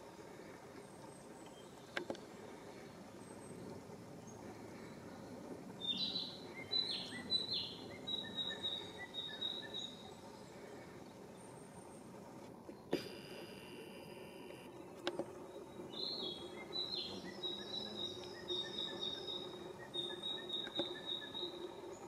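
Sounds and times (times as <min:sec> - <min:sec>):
outdoor ambience hiss: 0:00.0 - 0:22.0
songbird singing: 0:01.2 - 0:02.3, 0:03.1 - 0:11.8, 0:14.6 - 0:22.0.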